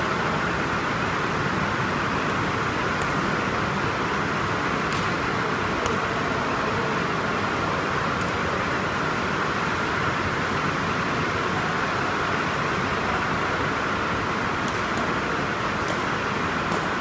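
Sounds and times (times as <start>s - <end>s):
ventilation fans hissing: 0.0s - 17.0s.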